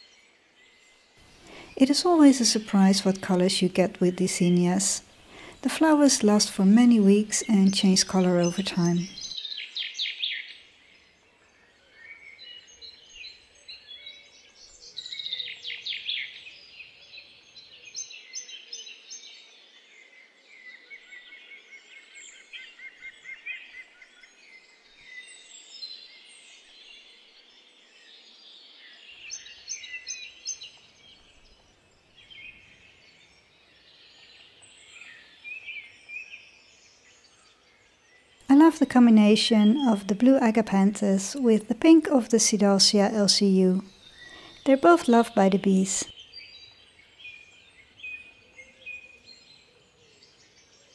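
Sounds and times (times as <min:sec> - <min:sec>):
songbirds singing: 0:00.0 - 0:50.9.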